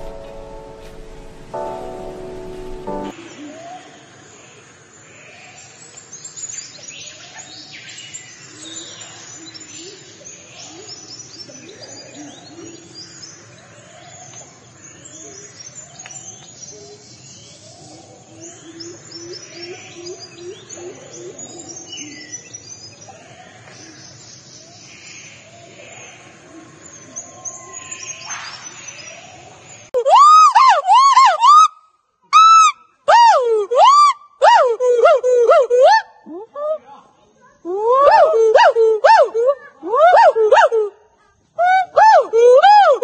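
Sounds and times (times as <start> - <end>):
birds chirping: 0.0 - 3.2.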